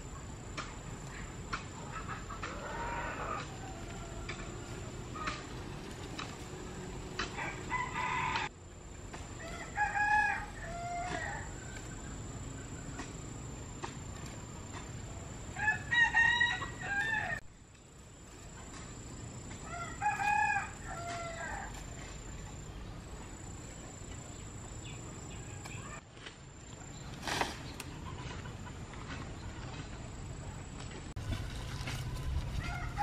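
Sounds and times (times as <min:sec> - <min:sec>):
rooster crowing: 0:02.4 - 0:05.4, 0:07.2 - 0:08.5, 0:09.4 - 0:11.8, 0:15.6 - 0:17.4, 0:19.6 - 0:21.9, 0:32.6 - 0:33.0.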